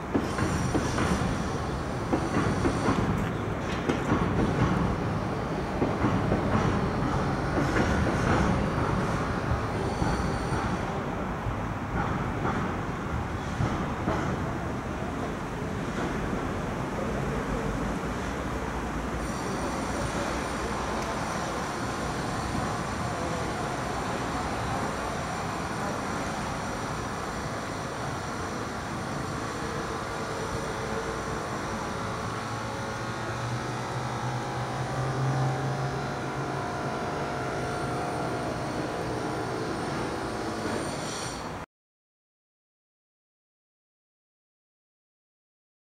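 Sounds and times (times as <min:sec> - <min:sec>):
distant traffic noise: 0:00.0 - 0:41.6
low engine drone: 0:15.8 - 0:40.5.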